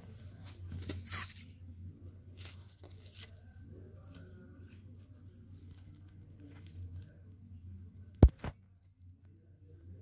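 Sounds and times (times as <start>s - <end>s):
low room hum: 0.0s - 10.0s.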